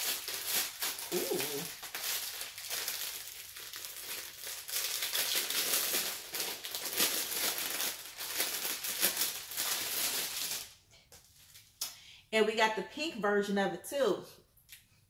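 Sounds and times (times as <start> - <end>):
plastic packaging crinkling: 0.0 - 11.8.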